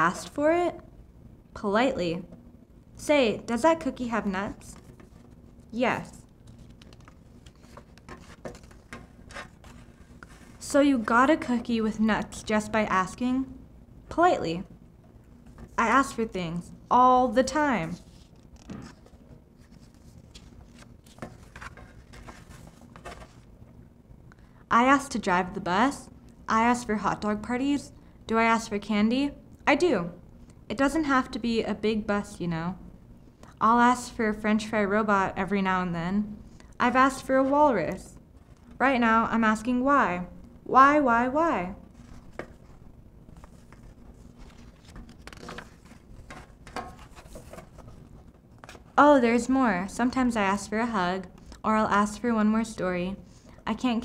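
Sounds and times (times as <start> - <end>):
paper page rustling: 6.4 - 10.7, 17.8 - 23.5, 41.9 - 49.0.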